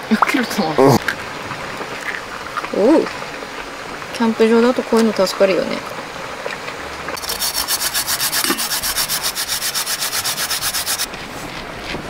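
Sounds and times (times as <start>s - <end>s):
yam grating rasps: 7.2s - 11.1s.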